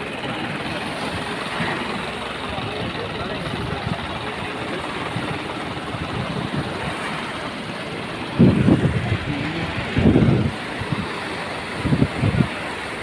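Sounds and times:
surf: 0:00.0 - 0:13.0
tractor engine under load: 0:00.0 - 0:13.0
wind gusts on microphone: 0:05.0 - 0:13.0.

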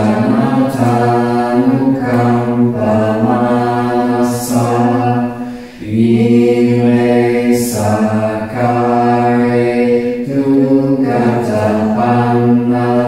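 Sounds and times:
low voices chanting: 0:00.0 - 0:13.0.

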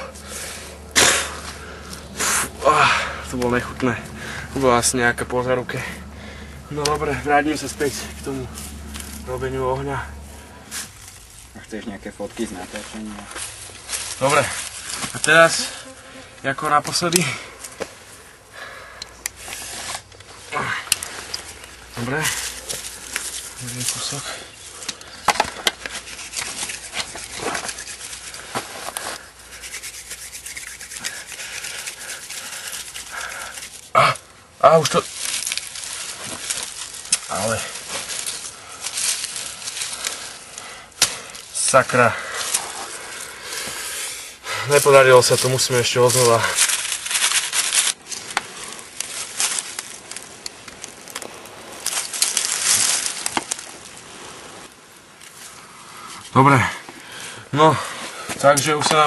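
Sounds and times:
dry leaves and twigs crackling: 0:00.0 - 0:59.0
hand-drill spindle rasping: 0:25.4 - 0:33.9.

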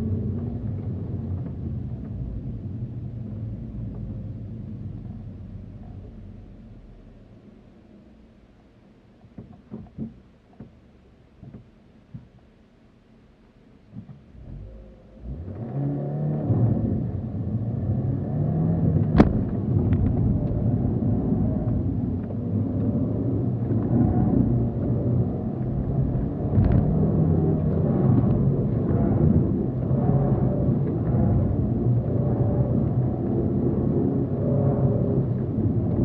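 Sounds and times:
car engine revving: 0:14.4 - 0:36.0.

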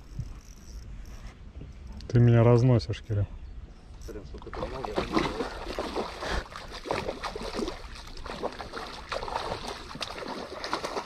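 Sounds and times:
fish splashing in water: 0:04.5 - 0:11.0.

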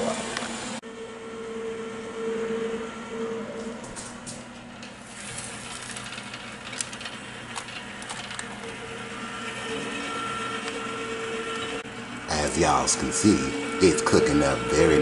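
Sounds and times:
rotisserie oven humming: 0:00.0 - 0:15.0
fat crackling on heating element: 0:03.7 - 0:15.0.

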